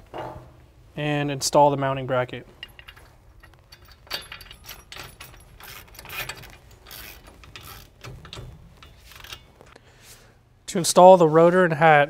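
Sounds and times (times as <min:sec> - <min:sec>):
metal parts clinking and scraping: 0:02.5 - 0:09.8.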